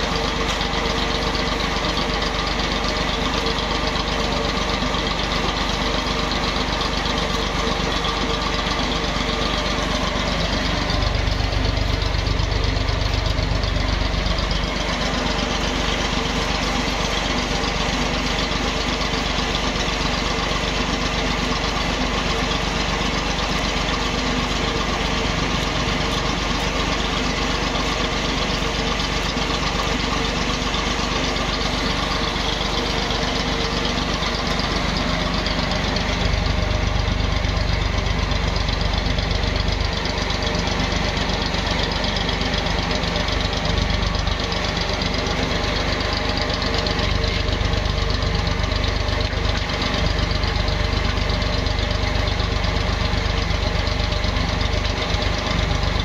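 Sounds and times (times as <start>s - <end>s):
deeper machine rumble: 0.0s - 56.0s
oil press mechanical drone: 0.0s - 56.0s.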